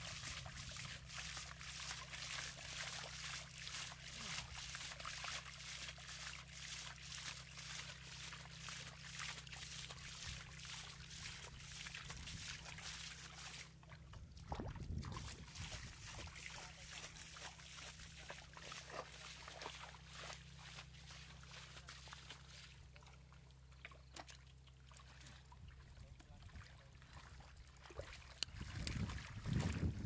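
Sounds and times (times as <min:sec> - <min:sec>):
muddy water splashing: 0:00.0 - 0:30.0.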